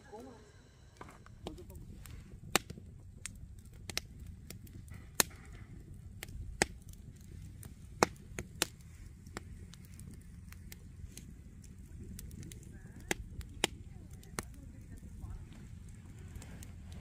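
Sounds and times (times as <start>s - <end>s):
campfire crackling and popping: 1.0s - 17.0s.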